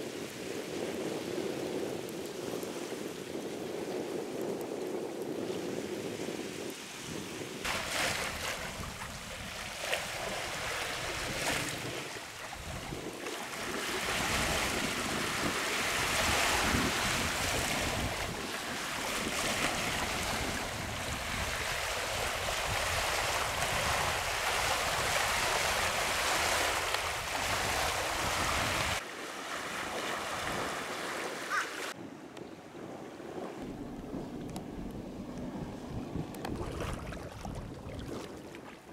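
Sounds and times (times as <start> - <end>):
wind buffeting microphone: 0.0 - 29.0, 29.6 - 38.9
small waves lapping: 6.7 - 32.0, 35.3 - 38.9.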